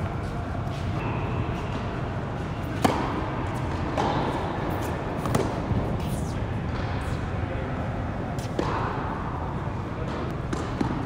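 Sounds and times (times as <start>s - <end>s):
tennis racket hitting ball: 2.7s - 6.9s, 10.0s - 11.0s.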